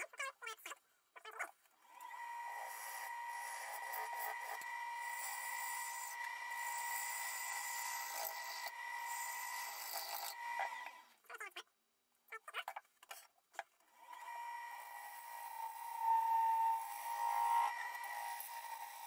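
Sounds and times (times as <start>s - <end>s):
wood gouge cutting on a lathe: 1.9s - 11.1s, 14.0s - 19.0s.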